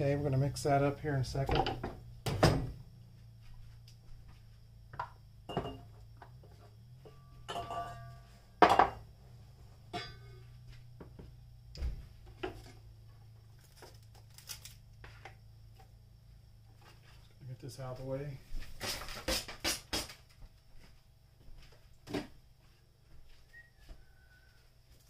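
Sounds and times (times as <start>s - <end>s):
low steady hum: 0.0s - 18.7s
metal bowl knocking with rings: 5.5s - 6.0s, 7.0s - 9.0s, 9.9s - 10.4s.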